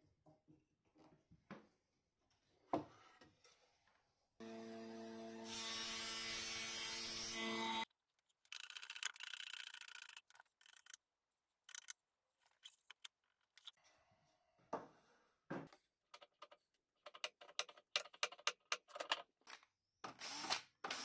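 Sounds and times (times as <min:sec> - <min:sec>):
scattered clicks: 0:08.4 - 0:11.0, 0:11.7 - 0:13.7, 0:16.2 - 0:19.2.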